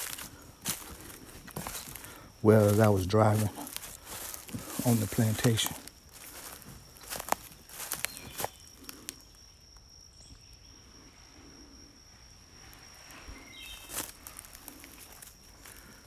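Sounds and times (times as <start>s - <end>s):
footsteps crunching through dry leaves: 0.0s - 9.1s, 12.8s - 16.0s
high-pitched insect drone: 0.0s - 16.0s.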